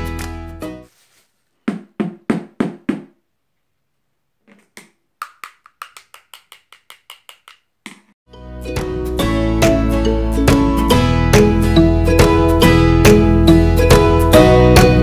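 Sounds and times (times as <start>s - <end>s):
knocking on dry clay: 1.7s - 3.1s.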